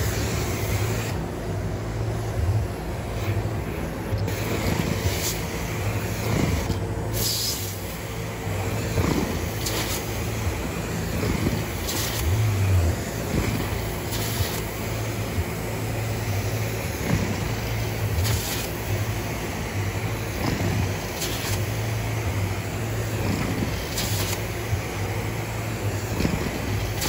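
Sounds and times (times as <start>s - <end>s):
suction rush of carpet cleaner: 0.0s - 1.3s, 2.0s - 27.0s
low machine hum: 0.0s - 27.0s
wand hissing on carpet: 8.6s - 12.3s, 20.3s - 21.7s, 23.2s - 24.6s.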